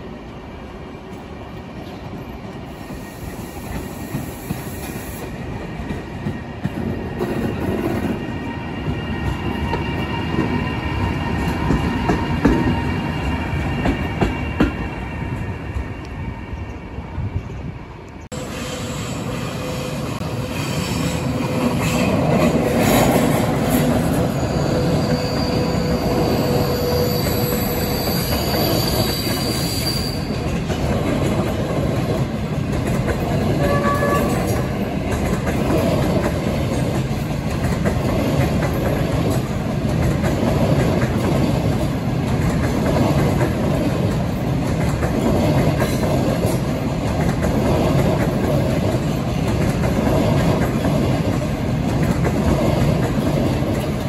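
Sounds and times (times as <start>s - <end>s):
train rumbling on rails: 0.0s - 54.0s
wheels squealing: 23.7s - 30.6s.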